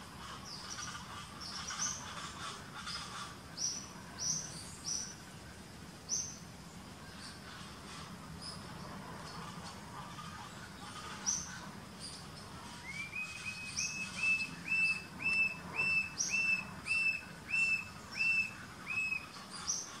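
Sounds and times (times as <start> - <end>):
bird whistled notes: 12.8 - 19.3.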